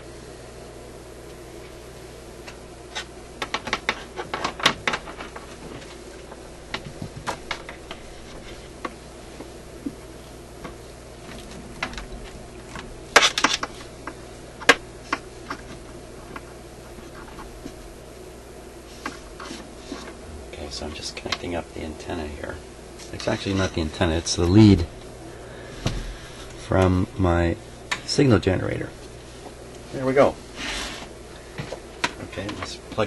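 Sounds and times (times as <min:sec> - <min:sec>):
steady low hum: 0:00.0 - 0:33.0
clicks and rattles of hands working: 0:02.4 - 0:10.0, 0:10.6 - 0:17.8, 0:19.0 - 0:21.5, 0:23.0 - 0:24.6, 0:31.6 - 0:33.0.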